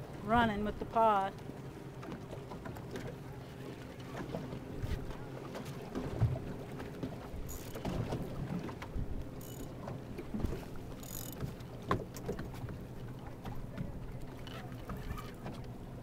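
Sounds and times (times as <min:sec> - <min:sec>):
waves knocking against hull: 0:00.0 - 0:16.0
boat motor idling: 0:06.5 - 0:16.0.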